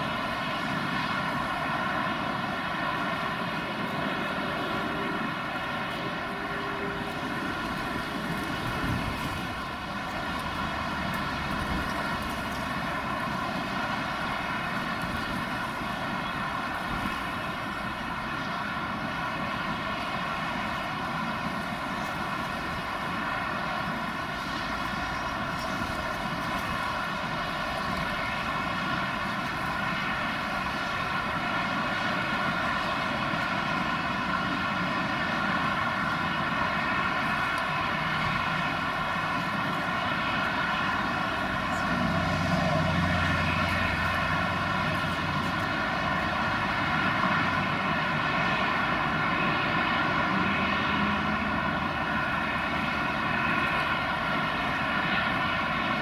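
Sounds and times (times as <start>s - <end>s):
buzzing drone: 0.0s - 56.0s
jet engine roar: 0.0s - 56.0s.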